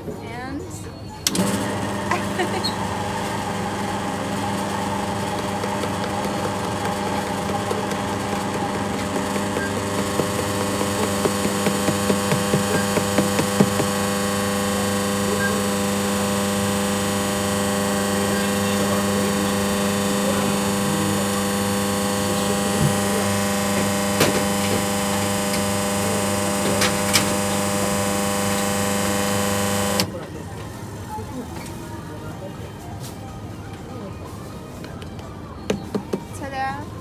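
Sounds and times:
grinding machine motor humming: 1.3s - 31.1s
sharp taps: 5.3s - 14.0s.

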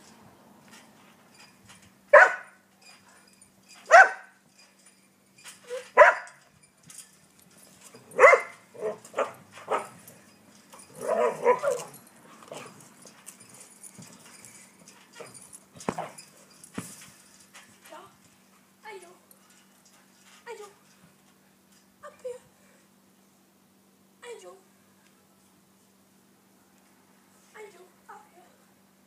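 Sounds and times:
dog barking: 2.1s - 2.5s, 3.9s - 4.3s, 6.0s - 6.4s, 8.2s - 9.9s, 11.0s - 11.9s.

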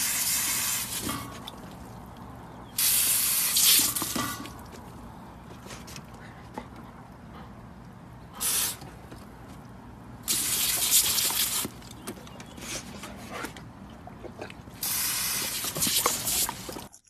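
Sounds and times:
hose nozzle spraying water: 2.8s - 4.5s, 10.2s - 11.8s, 14.8s - 16.9s.

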